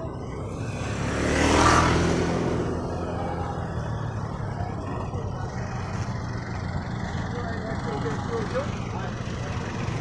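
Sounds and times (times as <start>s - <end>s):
vehicle engine running: 0.0s - 10.0s.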